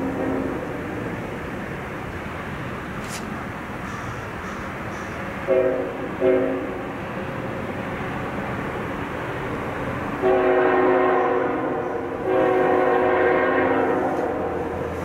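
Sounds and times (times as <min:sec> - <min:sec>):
train rumble: 0:00.0 - 0:15.0
locomotive air horn blasts: 0:05.4 - 0:06.8, 0:10.2 - 0:14.8.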